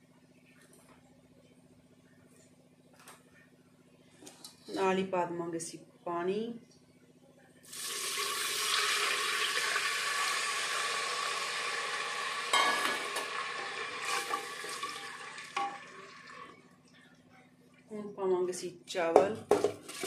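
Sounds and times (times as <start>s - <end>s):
water sizzling in hot oil: 7.7s - 16.4s.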